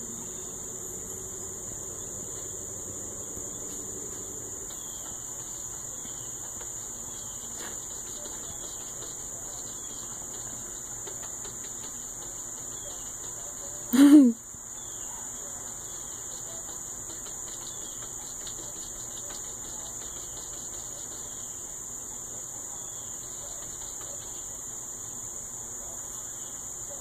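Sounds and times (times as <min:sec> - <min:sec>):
cat paws tapping on glass: 0:04.6 - 0:13.9, 0:15.9 - 0:21.4.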